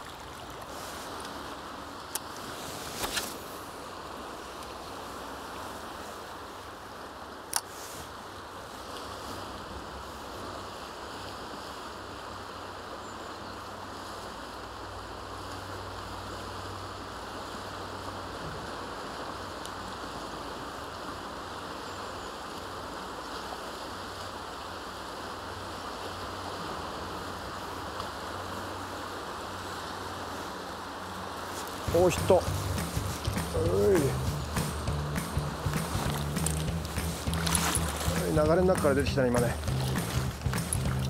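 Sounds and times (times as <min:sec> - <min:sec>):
fast-flowing river rushing: 0:13.7 - 0:41.0.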